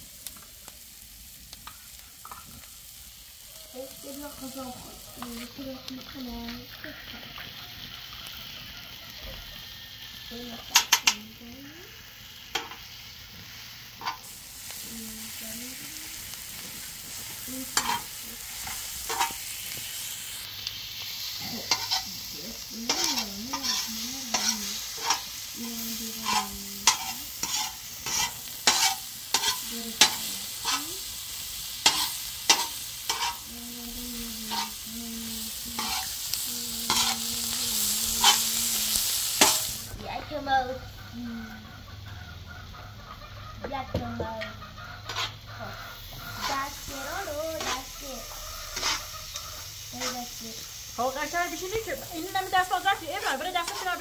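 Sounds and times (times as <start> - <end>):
food sizzling in a pan: 0.0 - 54.0
metal spatula scraping a pan: 1.6 - 2.6, 12.5 - 15.8, 16.4 - 20.1, 21.2 - 33.5, 34.3 - 34.8, 35.5 - 40.4, 44.4 - 50.4, 51.0 - 54.0.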